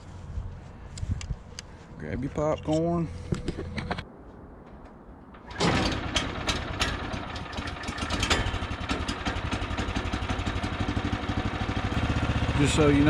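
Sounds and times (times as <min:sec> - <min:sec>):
small gas engine pull-started: 0:05.4 - 0:13.0.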